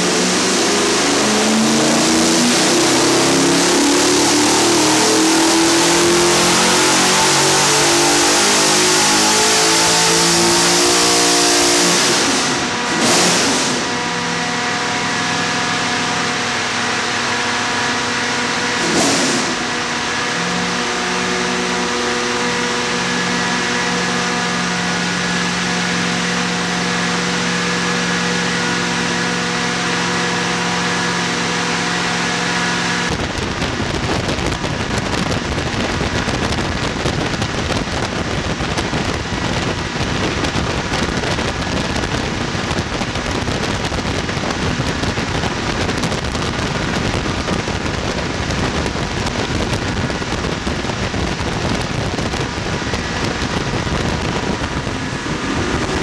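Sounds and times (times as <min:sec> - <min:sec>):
rough engine running under load: 0:00.0 - 0:56.0.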